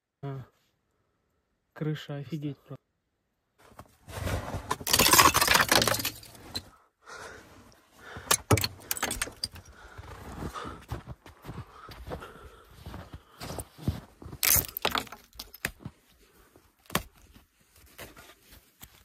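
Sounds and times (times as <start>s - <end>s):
icicles clinking and shattering: 4.7s - 6.6s, 8.3s - 9.7s, 14.4s - 15.6s.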